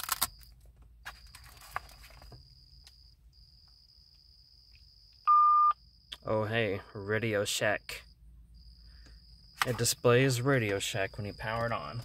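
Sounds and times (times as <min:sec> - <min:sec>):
handset and bag rustling: 0:00.0 - 0:02.5.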